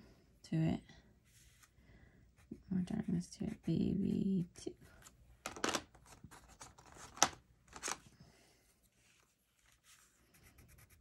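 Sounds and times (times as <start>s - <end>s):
pencils rustling: 4.9s - 11.0s.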